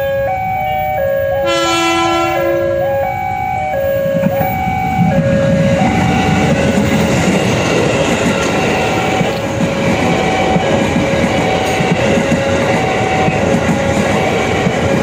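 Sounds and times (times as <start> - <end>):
two-note electronic tone: 0.0 - 6.6
train wheels rumbling on rail: 1.4 - 15.0.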